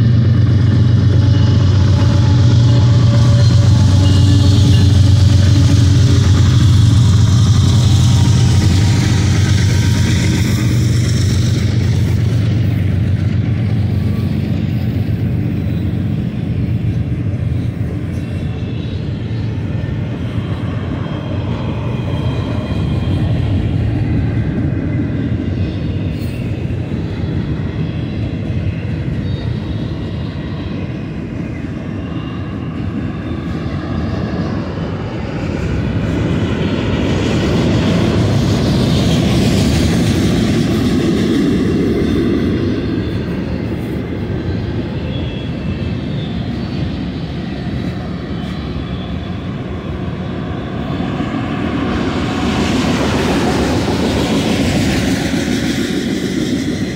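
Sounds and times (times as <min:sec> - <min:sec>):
diesel locomotive engine drone: 0:00.0 - 0:56.9
rail cars rumbling by: 0:00.0 - 0:56.9.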